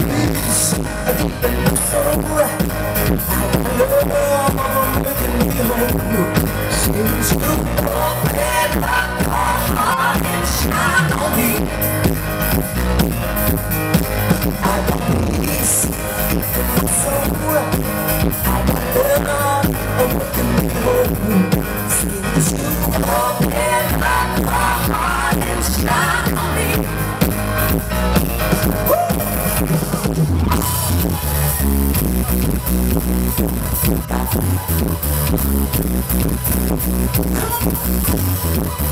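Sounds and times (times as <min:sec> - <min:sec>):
live dance-pop band: 0:00.0 - 0:38.9
woman singing: 0:18.8 - 0:26.9.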